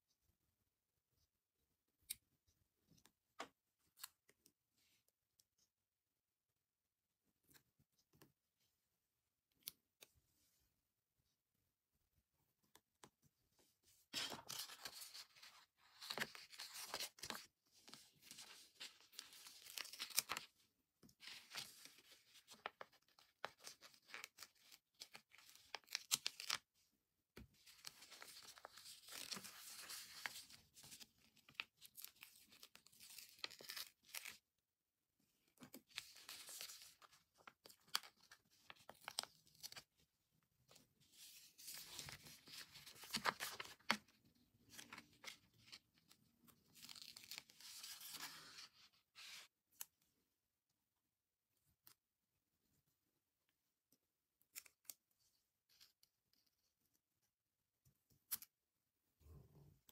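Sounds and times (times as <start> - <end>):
paper rustling and crinkling: 14.1 - 20.6, 21.2 - 26.6, 27.5 - 34.4, 35.7 - 39.9, 41.1 - 49.5.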